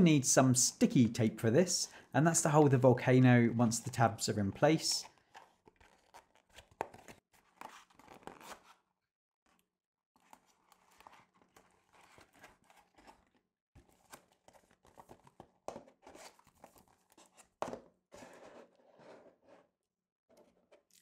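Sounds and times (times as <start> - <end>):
cardboard crinkling: 5.1 - 8.8, 10.2 - 18.7.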